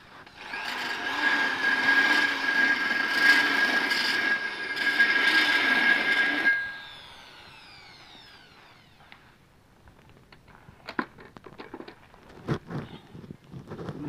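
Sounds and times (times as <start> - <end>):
angle grinder cutting steel: 0.1 - 9.2
grinder disc spinning down: 0.2 - 9.3.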